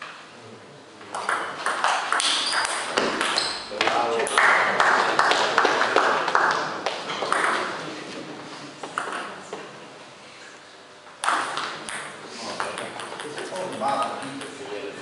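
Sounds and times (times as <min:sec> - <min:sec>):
spectators clapping: 0:03.8 - 0:07.1.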